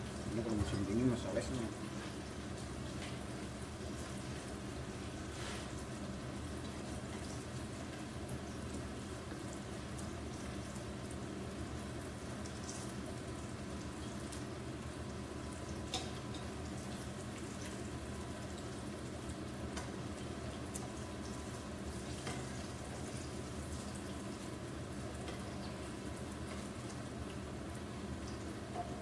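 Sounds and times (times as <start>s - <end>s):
frying in hot oil: 0.0s - 29.0s.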